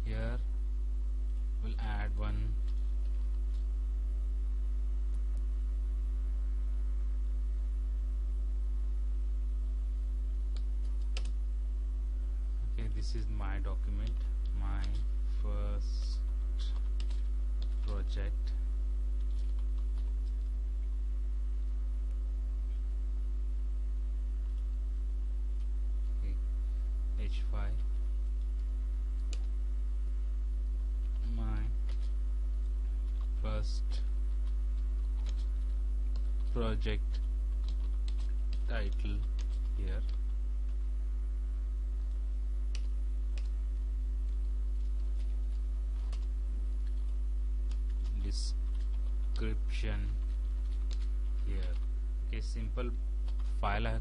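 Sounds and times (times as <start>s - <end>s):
low electrical mains hum: 0.0s - 54.0s
computer keyboard keystrokes: 10.6s - 11.4s, 16.6s - 18.0s, 34.4s - 35.5s, 36.1s - 40.2s, 50.2s - 51.9s.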